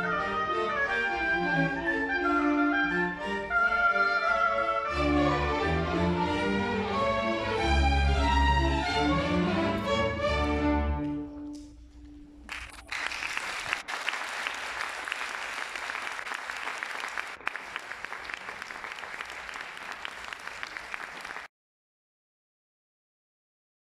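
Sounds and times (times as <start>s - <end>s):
audience applause: 12.4s - 21.5s.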